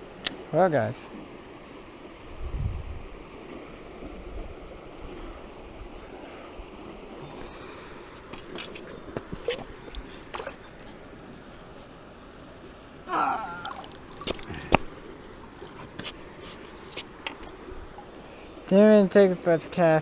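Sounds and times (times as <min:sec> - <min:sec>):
flowing river water: 0:00.0 - 0:20.0
sandal footsteps on rocks: 0:08.1 - 0:11.9, 0:12.6 - 0:17.5.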